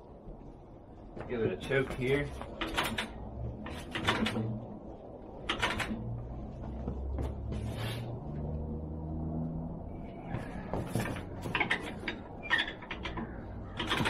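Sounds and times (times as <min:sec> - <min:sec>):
metallic clicks and knocks: 0:02.4 - 0:04.7, 0:05.4 - 0:06.0, 0:10.9 - 0:14.0.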